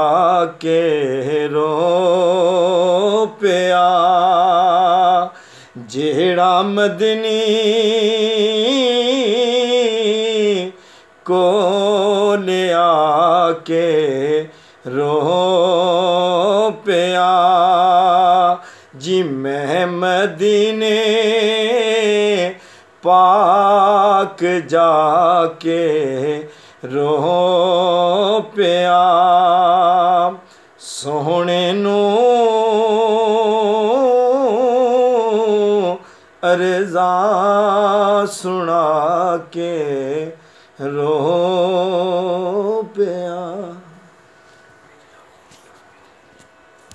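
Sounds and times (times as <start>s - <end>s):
man singing unaccompanied: 0.0s - 44.1s
singer breathing: 5.3s - 5.8s, 10.7s - 11.2s, 14.5s - 14.9s, 18.6s - 19.0s, 22.6s - 23.0s, 26.4s - 26.8s, 30.4s - 30.8s, 36.0s - 36.4s, 40.4s - 40.8s.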